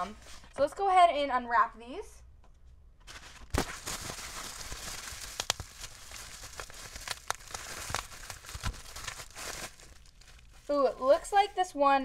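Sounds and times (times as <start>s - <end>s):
plastic wrap crinkling: 3.1s - 12.0s
sharp crackles: 3.4s - 11.4s.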